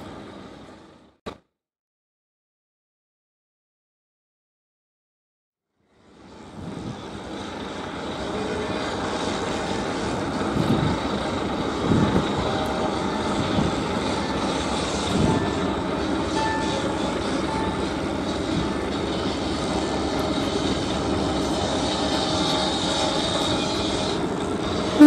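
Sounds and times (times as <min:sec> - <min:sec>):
ship engines droning: 0:00.0 - 0:01.2, 0:05.8 - 0:25.0.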